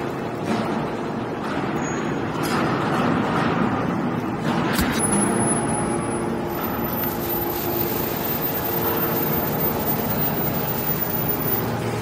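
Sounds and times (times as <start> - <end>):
hydraulic power unit drone: 0.0 - 12.0
faint steady tones: 5.0 - 12.0.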